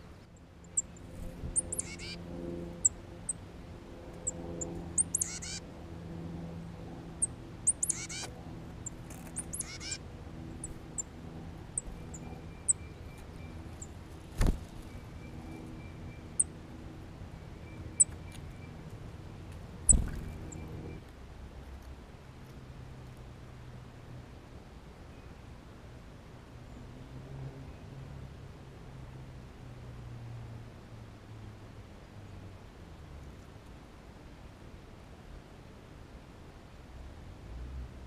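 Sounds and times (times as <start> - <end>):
songbirds calling: 0.0 - 3.4, 4.2 - 5.6, 7.1 - 21.1.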